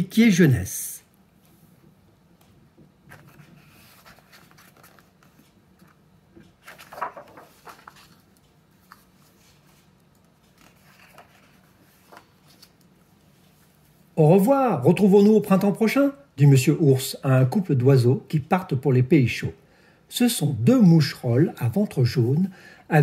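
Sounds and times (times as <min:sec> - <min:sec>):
book pages turning: 0:03.0 - 0:13.9.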